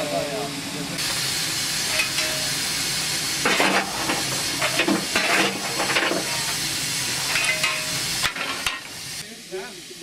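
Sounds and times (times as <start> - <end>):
steam hissing: 0.0 - 10.0
metallic clatter: 3.4 - 6.5, 7.2 - 8.9.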